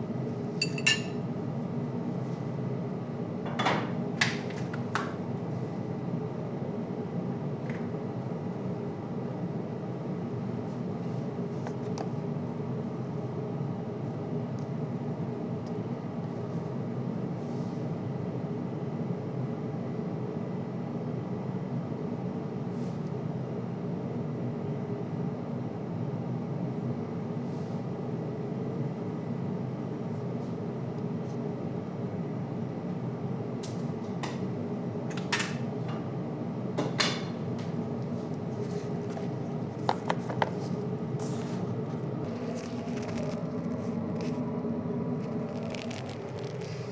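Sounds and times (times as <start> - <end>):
kitchen fan humming: 0.0 - 17.7, 28.0 - 46.9.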